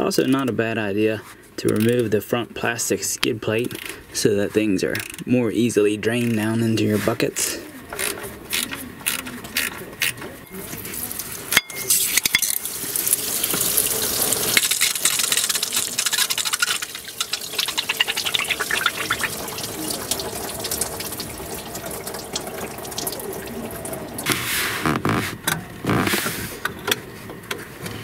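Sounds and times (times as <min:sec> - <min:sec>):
coolant pouring into bucket: 0:10.6 - 0:24.3.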